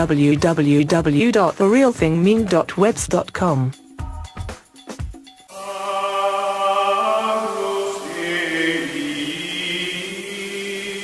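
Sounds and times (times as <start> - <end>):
choral chanting: 5.5 - 11.0.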